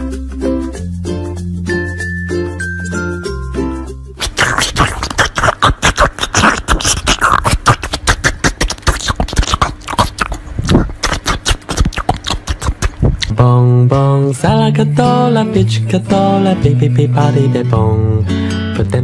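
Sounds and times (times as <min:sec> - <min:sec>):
rapid percussive clicks and thumps: 0:04.2 - 0:13.4.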